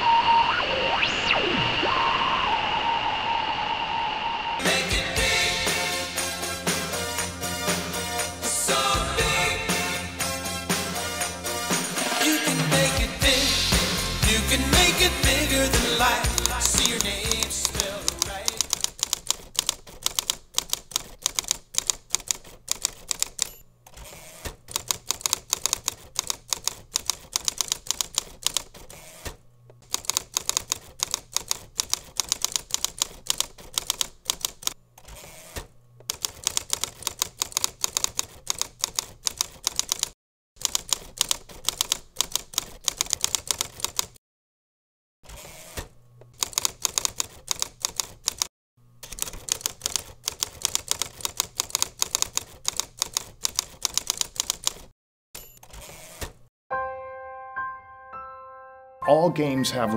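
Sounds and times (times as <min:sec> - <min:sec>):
typewriter keystrokes clacking: 0:16.2 - 0:23.6, 0:24.7 - 0:28.9, 0:29.8 - 0:34.8, 0:36.0 - 0:44.2, 0:46.4 - 0:55.8.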